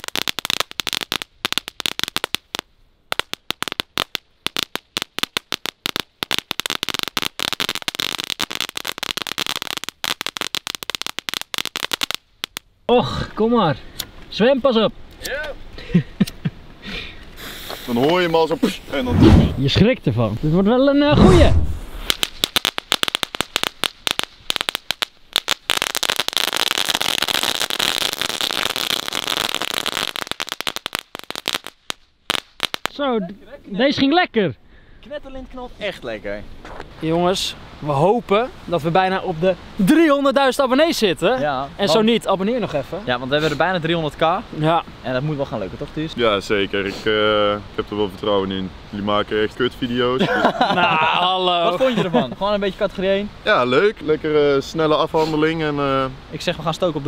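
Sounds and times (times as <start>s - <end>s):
crackling firework bangs: 0.0s - 12.6s, 21.1s - 33.0s.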